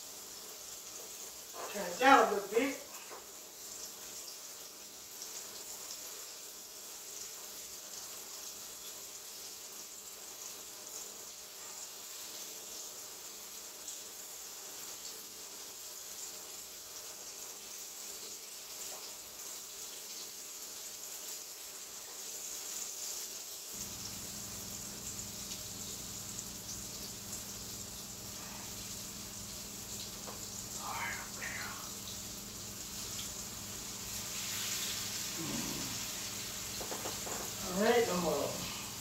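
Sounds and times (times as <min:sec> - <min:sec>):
chicken sizzling in grease: 0:00.0 - 0:39.0.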